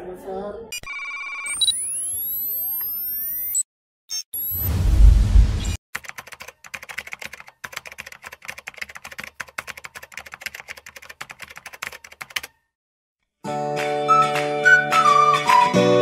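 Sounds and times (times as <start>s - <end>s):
typing on laptop keyboard: 6.0s - 12.6s.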